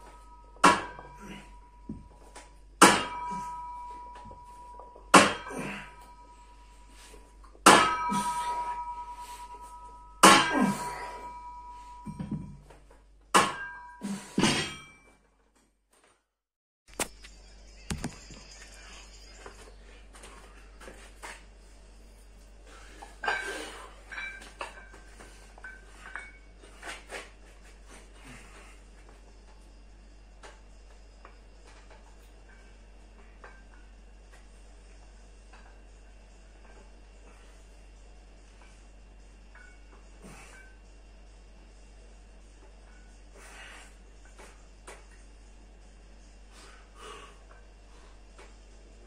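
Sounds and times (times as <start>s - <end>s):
barbell plates clanging: 0.0s - 12.7s, 22.9s - 27.0s.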